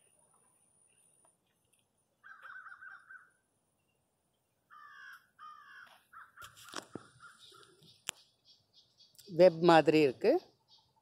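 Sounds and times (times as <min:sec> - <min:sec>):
crow cawing: 0:02.2 - 0:03.4, 0:04.7 - 0:07.7.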